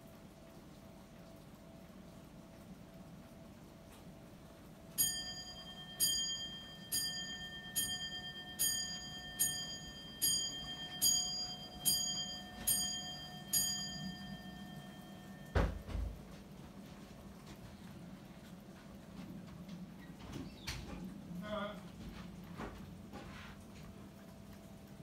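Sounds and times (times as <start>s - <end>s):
clock bell striking: 5.0s - 15.9s
low thump: 15.6s - 16.2s.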